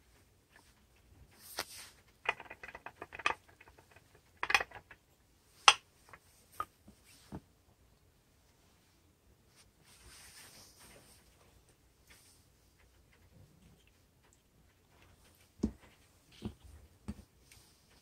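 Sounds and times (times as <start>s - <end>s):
plastic clicks and knocks: 2.2s - 5.0s.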